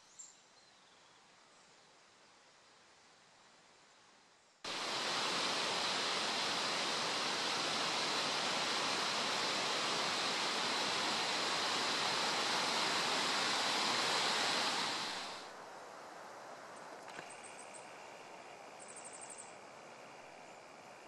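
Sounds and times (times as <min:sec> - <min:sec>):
stream rushing over rocks: 0:04.7 - 0:15.5.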